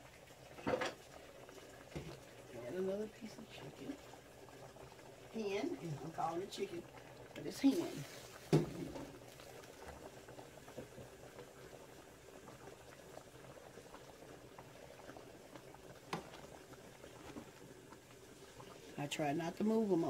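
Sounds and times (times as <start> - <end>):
broth bubbling in pot: 0.0 - 20.0
knock: 8.5 - 9.0.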